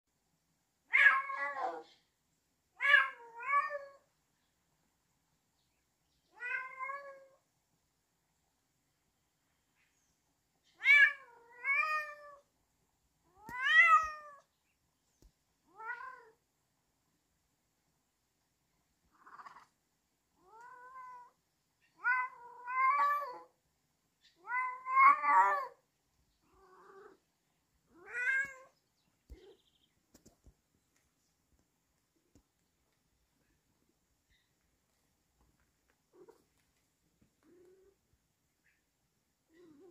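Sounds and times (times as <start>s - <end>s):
cat meowing: 0.9s - 1.9s, 2.8s - 4.0s, 6.3s - 7.4s, 10.8s - 12.5s, 13.4s - 14.5s, 15.7s - 16.4s, 20.4s - 21.4s, 22.0s - 23.5s, 24.4s - 25.8s, 26.5s - 27.2s, 27.9s - 28.7s.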